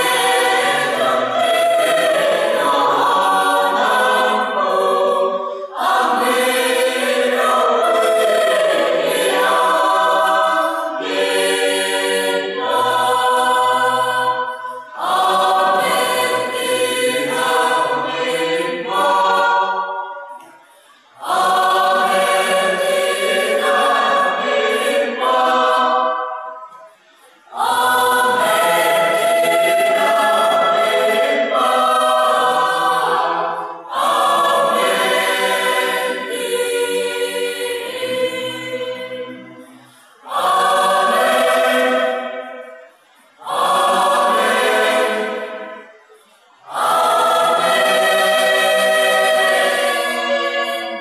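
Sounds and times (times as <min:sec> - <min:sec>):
choir singing a hymn unaccompanied: 0:00.0 - 0:51.0.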